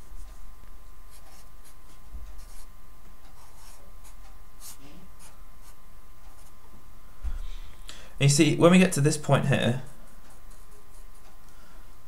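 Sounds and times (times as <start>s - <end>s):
marker scratching on paper: 1.1s - 2.7s, 3.3s - 6.5s, 10.0s - 11.2s.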